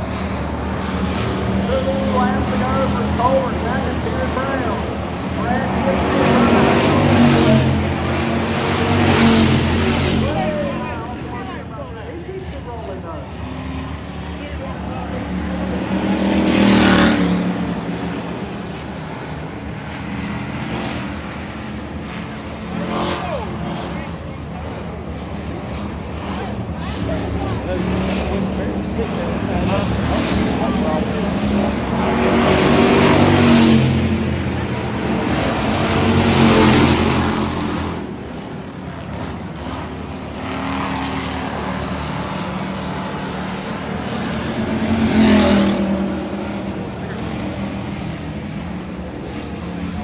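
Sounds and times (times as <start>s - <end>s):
race car engines around track: 0.0s - 50.0s
race car passing close: 0.0s - 50.0s.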